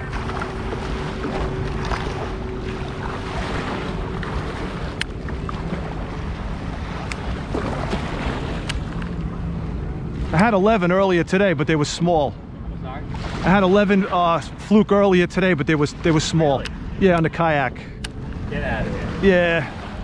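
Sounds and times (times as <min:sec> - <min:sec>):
small waves lapping: 0:00.0 - 0:20.0
light ticks: 0:05.0 - 0:05.2.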